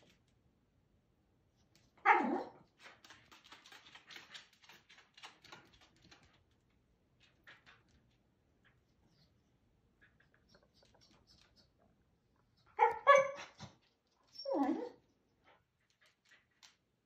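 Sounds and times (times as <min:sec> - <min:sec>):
dog barking: 0:02.0 - 0:02.6, 0:12.8 - 0:13.5
dog yipping: 0:02.0 - 0:02.6, 0:12.6 - 0:15.0
dog claws clicking on wood floor: 0:02.6 - 0:08.8, 0:15.8 - 0:17.0.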